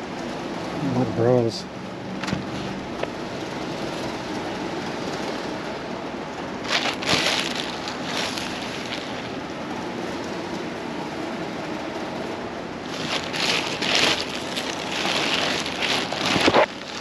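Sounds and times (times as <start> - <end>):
fabric rustling: 6.6 - 9.4, 12.8 - 17.0.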